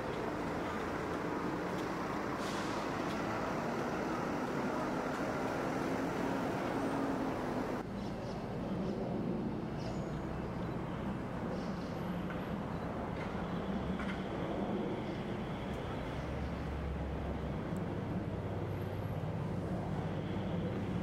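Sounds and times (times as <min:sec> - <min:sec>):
distant road traffic hum: 0:00.0 - 0:21.0.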